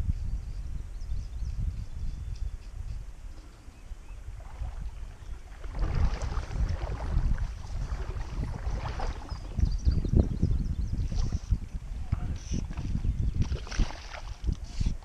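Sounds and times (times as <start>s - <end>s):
wind buffeting the microphone: 0.0s - 15.0s
creek water splashing: 4.3s - 9.9s, 12.4s - 15.0s.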